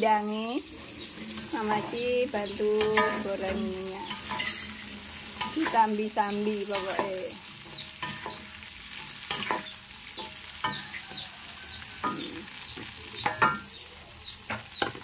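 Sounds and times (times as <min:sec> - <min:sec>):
food sizzling in oil: 0:00.0 - 0:15.0
spatula knocking against pan: 0:09.3 - 0:11.0.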